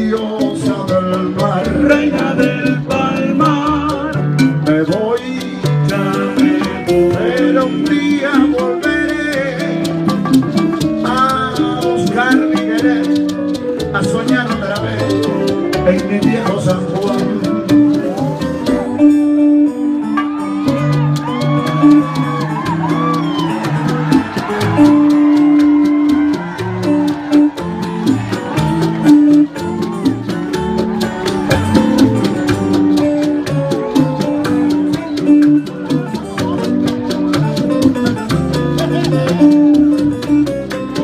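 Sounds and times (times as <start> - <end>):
bass: 0.0 - 41.0
congas and percussion: 0.0 - 41.0
electric guitar: 0.0 - 41.0.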